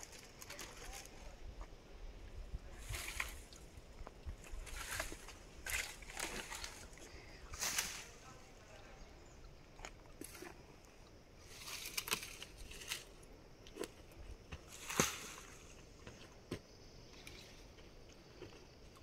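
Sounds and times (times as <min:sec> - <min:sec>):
branch twigs rustling and snapping: 0:04.4 - 0:06.9, 0:11.6 - 0:13.1.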